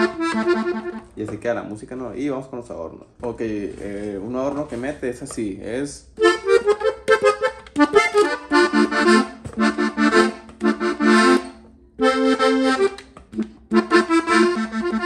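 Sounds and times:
button accordion playing: 0:00.0 - 0:01.4, 0:06.2 - 0:15.0.

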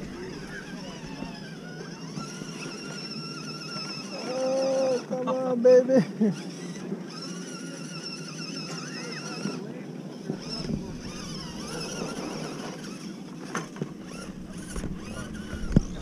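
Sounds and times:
electric motor whine: 0:00.0 - 0:16.0
wind rumbling on microphone: 0:10.4 - 0:11.7, 0:14.1 - 0:16.0.

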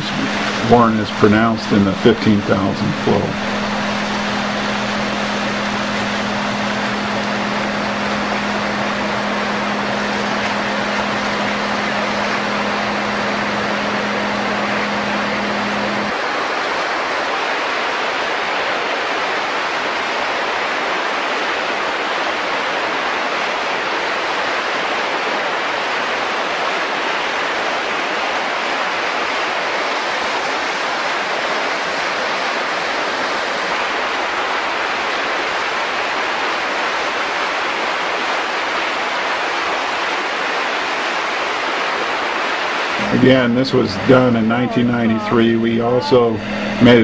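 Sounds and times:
river rushing in flood: 0:16.1 - 0:45.8.

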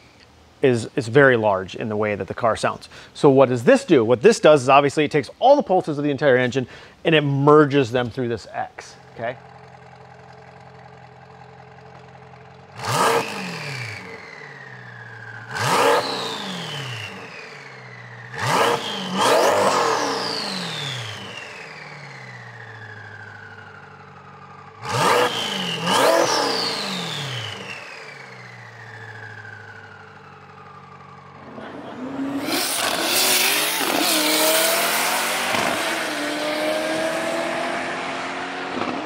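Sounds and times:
car engine idling: 0:08.0 - 0:36.8
engine revving in sharp blips: 0:09.4 - 0:39.0
turbo whine spinning down: 0:24.8 - 0:39.0.

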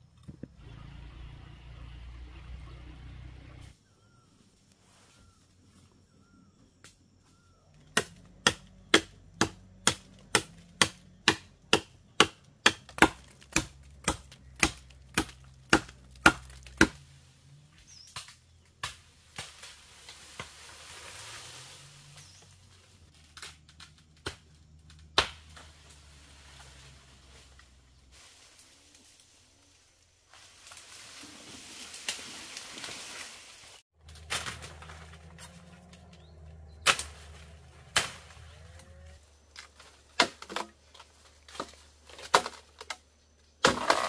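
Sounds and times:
tool striking bamboo: 0:07.8 - 0:17.1, 0:23.4 - 0:25.6.

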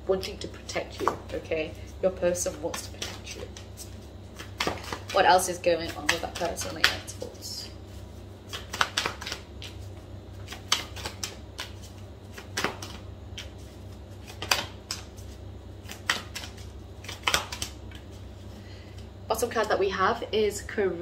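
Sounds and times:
low steady hum: 0:00.0 - 0:21.0
cards tapping on a table: 0:04.4 - 0:05.2, 0:08.5 - 0:09.4.

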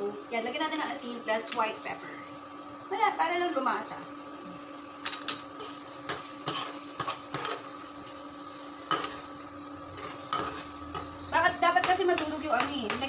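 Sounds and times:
cooktop hum: 0:00.0 - 0:13.0.

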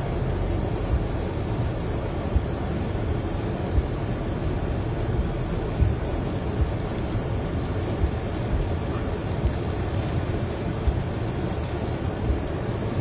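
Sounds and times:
car and water rumble: 0:00.0 - 0:13.0
short low thumps: 0:00.8 - 0:01.2, 0:03.8 - 0:04.0, 0:05.2 - 0:06.8.

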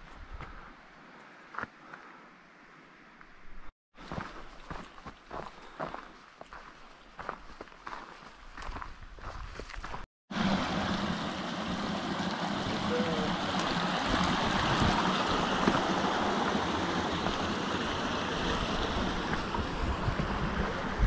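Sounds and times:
water rushing over rocks: 0:10.3 - 0:21.0.

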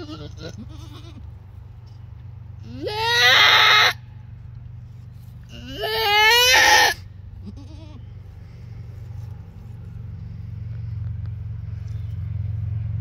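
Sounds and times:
goat bleating loudly: 0:00.0 - 0:01.4, 0:02.6 - 0:04.1, 0:05.4 - 0:08.2
steady low hum: 0:00.0 - 0:03.2, 0:03.9 - 0:06.1, 0:06.9 - 0:13.0.

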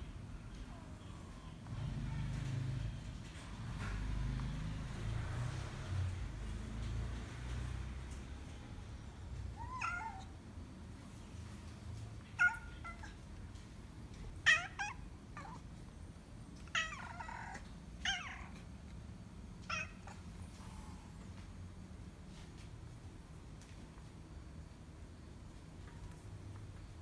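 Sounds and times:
cat meowing: 0:09.6 - 0:10.3, 0:12.3 - 0:13.2, 0:14.4 - 0:15.6, 0:16.6 - 0:18.6, 0:19.6 - 0:20.3.

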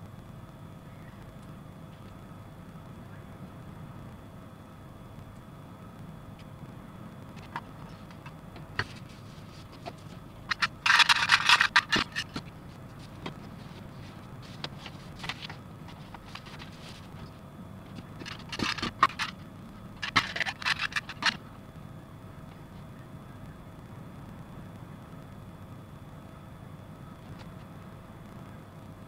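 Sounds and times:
rustling and scraping: 0:07.4 - 0:21.4.

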